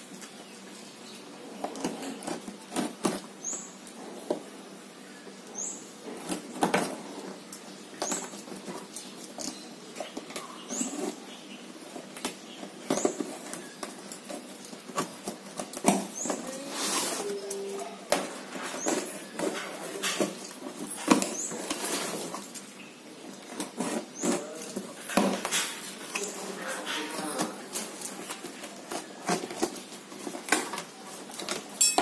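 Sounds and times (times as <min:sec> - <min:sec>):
cardboard tearing: 0:23.4 - 0:26.6, 0:27.2 - 0:31.8.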